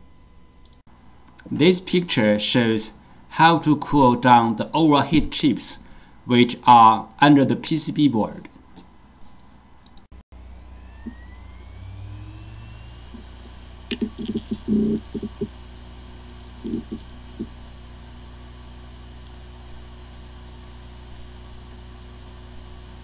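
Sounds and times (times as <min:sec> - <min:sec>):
hard drive whirring: 0:10.4 - 0:23.0
hard drive clicks and knocks: 0:13.4 - 0:15.6, 0:16.2 - 0:17.6.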